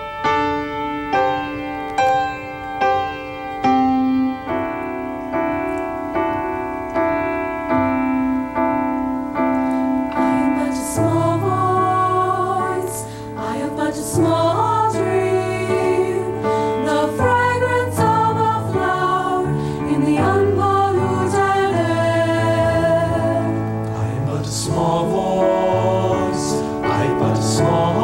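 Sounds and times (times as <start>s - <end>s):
piano playing chords: 0.0s - 28.0s
choir singing: 10.1s - 28.0s.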